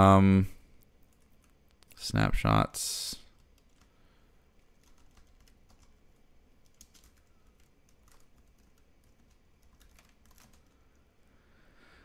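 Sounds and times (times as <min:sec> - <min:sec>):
keyboard typing: 0:03.3 - 0:03.9, 0:04.6 - 0:11.0.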